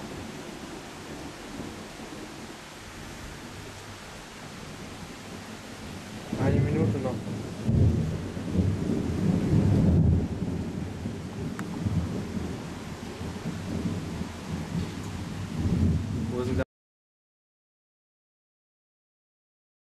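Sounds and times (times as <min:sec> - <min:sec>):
steady rain: 0:00.0 - 0:16.6
rolling thunder: 0:04.4 - 0:16.6.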